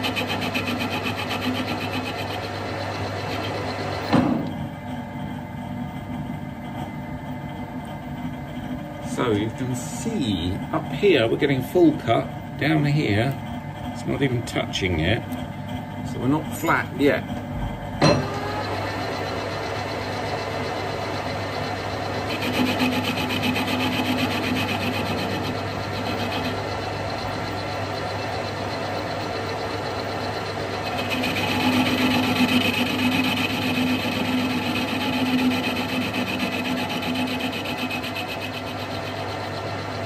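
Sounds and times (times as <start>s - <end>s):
metal cutter scraping: 0.0s - 4.2s, 21.2s - 40.0s
steady low hum: 0.0s - 40.0s.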